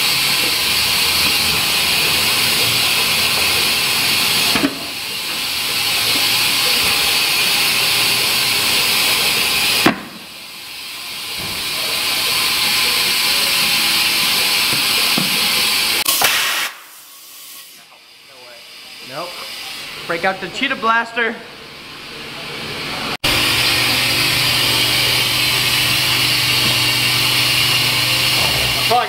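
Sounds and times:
compressed air hiss: 0:12.9 - 0:17.9.

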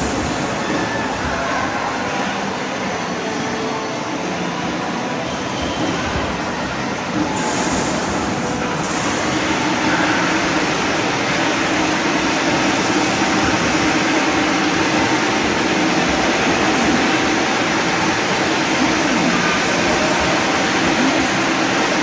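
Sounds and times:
amusement arcade din: 0:05.3 - 0:22.0.

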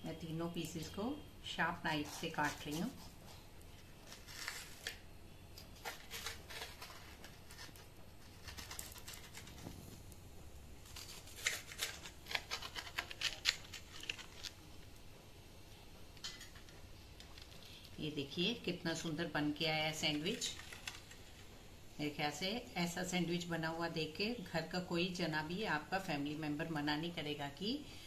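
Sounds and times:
knife crunching through toasted bread: 0:01.9 - 0:05.0, 0:05.6 - 0:10.1, 0:10.8 - 0:14.6.

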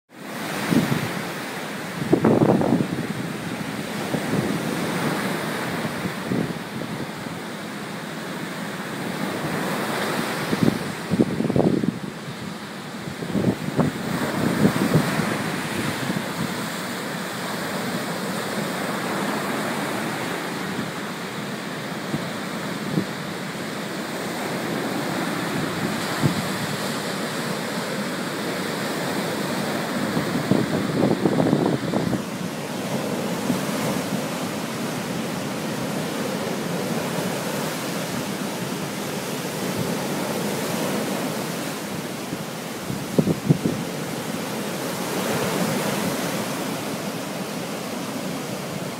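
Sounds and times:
surf washing on beach: 0:00.1 - 0:48.9
wind buffeting microphone: 0:02.0 - 0:07.2, 0:10.4 - 0:16.8, 0:24.1 - 0:36.0, 0:42.8 - 0:44.2.

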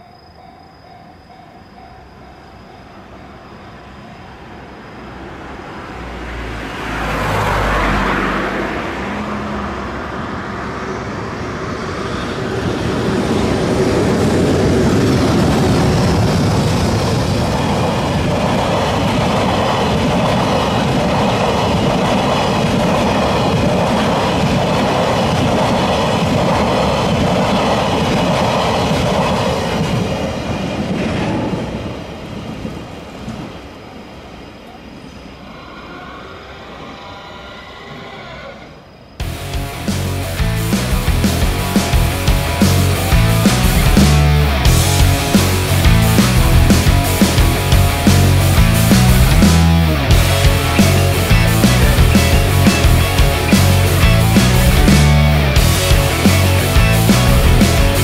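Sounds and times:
crossing warning bell ringing: 0:00.0 - 0:04.8
freight train passing: 0:00.0 - 0:58.0.

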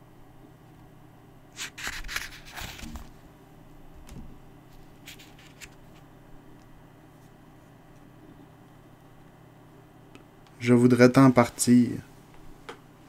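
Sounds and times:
book page rustling: 0:01.6 - 0:03.2, 0:04.8 - 0:06.1.

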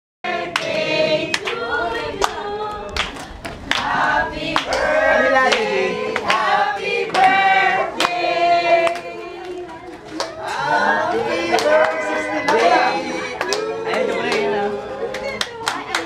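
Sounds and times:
group of people singing: 0:00.2 - 0:16.0
hand claps: 0:00.5 - 0:01.6, 0:04.6 - 0:04.9, 0:13.4 - 0:14.5, 0:15.1 - 0:16.0.

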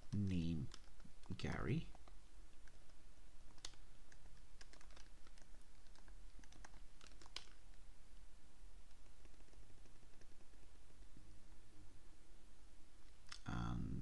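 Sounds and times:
keyboard typing: 0:00.0 - 0:07.8, 0:08.8 - 0:11.2.

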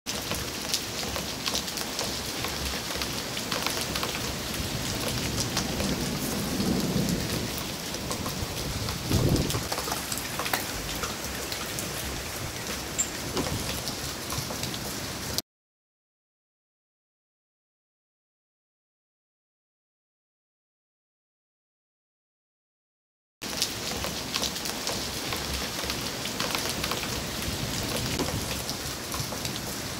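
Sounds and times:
rain and wind hiss: 0:00.1 - 0:15.4, 0:23.4 - 0:29.9.

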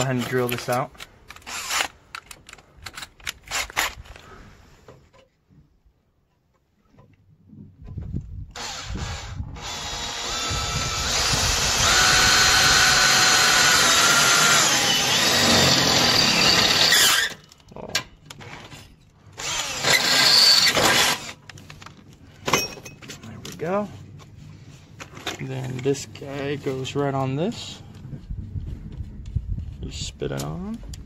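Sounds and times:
power drill boring: 0:08.6 - 0:17.4, 0:19.4 - 0:21.4.

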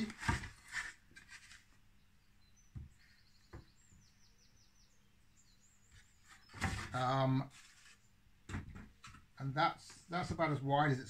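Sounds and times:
faint bird chirps: 0:01.9 - 0:08.2.

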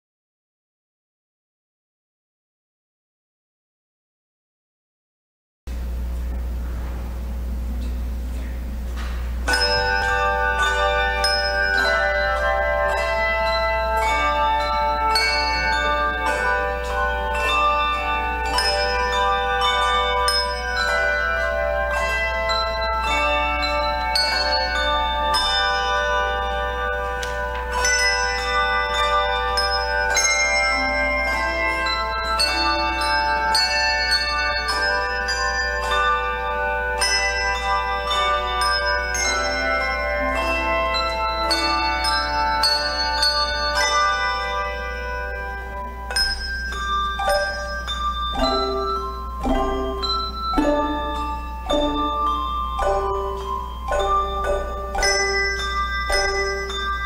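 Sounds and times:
steady low hum: 0:05.7 - 0:36.9
handbell choir playing: 0:09.0 - 0:57.0.

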